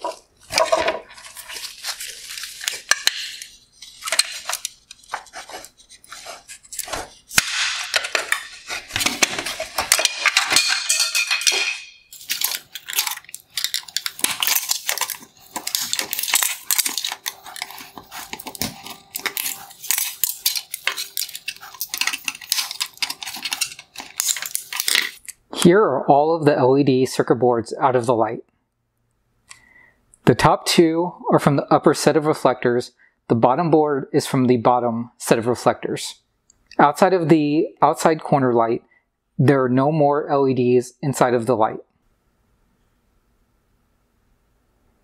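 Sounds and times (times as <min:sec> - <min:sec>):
plastic parts clicking and cracking: 0:00.0 - 0:25.4.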